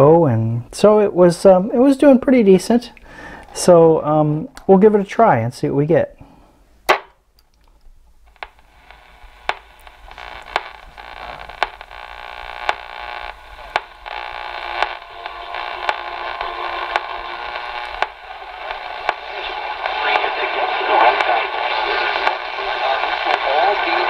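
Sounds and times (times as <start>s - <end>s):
radio static hiss: 8.3s - 24.0s.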